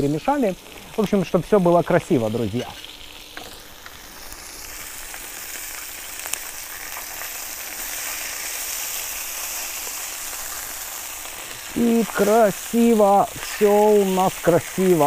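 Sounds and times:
sausages sizzling in a pan: 0.0 - 15.0
wooden spatula turning food: 6.2 - 15.0.

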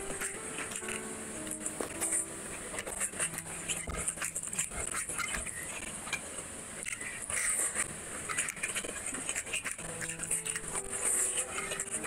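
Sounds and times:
background music: 0.0 - 4.6, 9.9 - 12.0.

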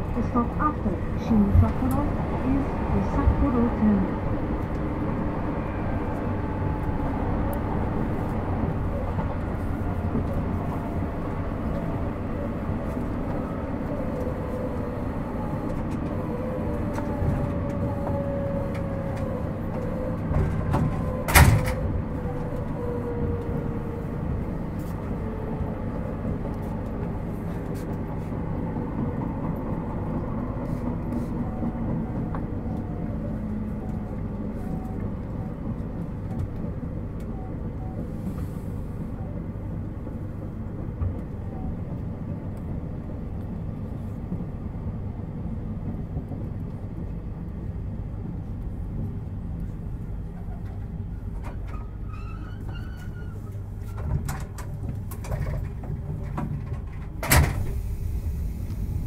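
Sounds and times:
train traction motor whine: 0.0 - 27.2
wheels rumbling on rail: 0.0 - 59.0.

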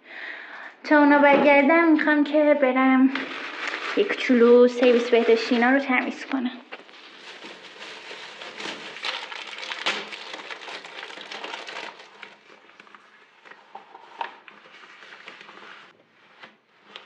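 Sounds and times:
plastic bags crinkling: 3.0 - 15.9.

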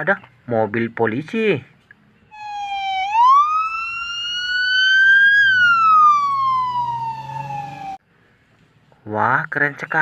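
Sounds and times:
police car siren wailing: 2.3 - 8.0.

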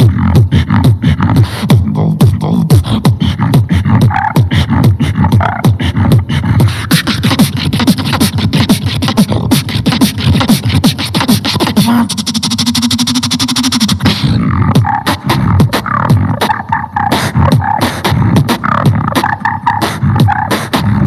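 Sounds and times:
person beatboxing: 0.0 - 21.0.

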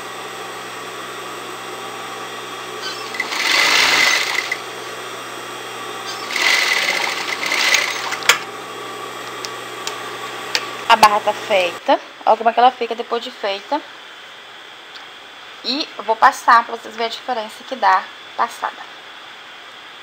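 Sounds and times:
sewing machine stitching: 2.9 - 4.6, 6.1 - 8.4
sewing machine motor humming: 2.9 - 4.7, 6.0 - 8.5.

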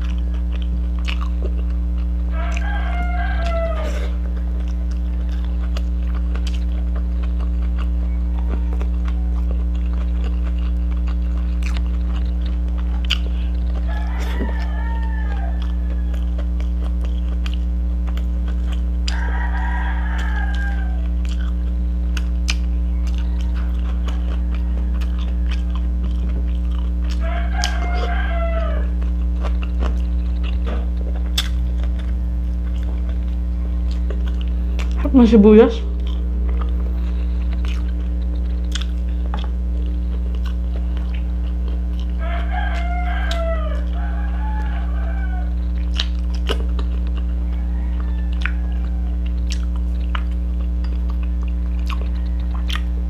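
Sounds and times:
steady low hum: 0.0 - 53.0
rooster crowing: 2.3 - 6.7, 7.7 - 10.1, 13.0 - 16.7, 19.0 - 21.5, 22.8 - 29.1, 41.0 - 45.8, 46.7 - 49.6, 51.4 - 53.0
eating by hand clicks: 4.3 - 35.0, 37.4 - 47.4, 48.0 - 52.9.

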